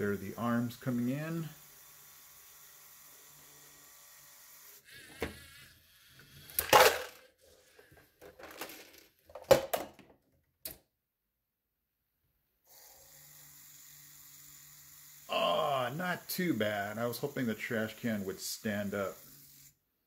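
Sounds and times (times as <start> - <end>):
hard plastic clattering: 6.6 - 10.2.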